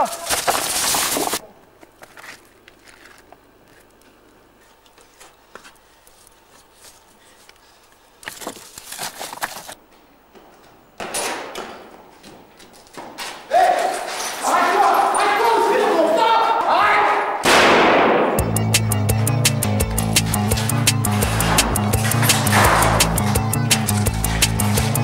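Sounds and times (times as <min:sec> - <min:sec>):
footsteps through brush and gravel: 0:00.0 - 0:09.8
scrambling footsteps: 0:00.0 - 0:17.1, 0:19.6 - 0:25.0.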